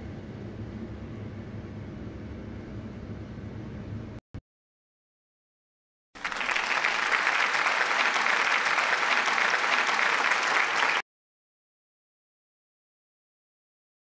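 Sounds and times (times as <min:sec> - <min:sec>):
crowd applauding: 0:06.2 - 0:11.0.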